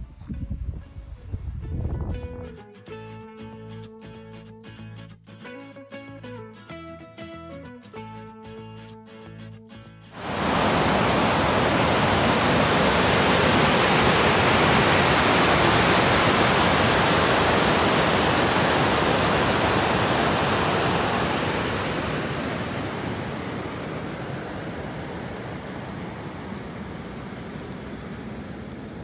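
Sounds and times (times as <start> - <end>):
water rushing over a spillway: 10.2 - 29.0.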